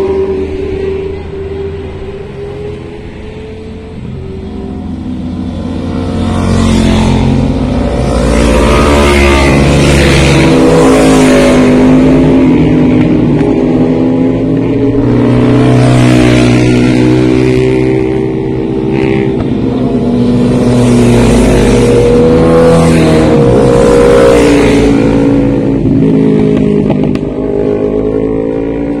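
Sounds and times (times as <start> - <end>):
motorcycles passing: 0.0 - 29.0.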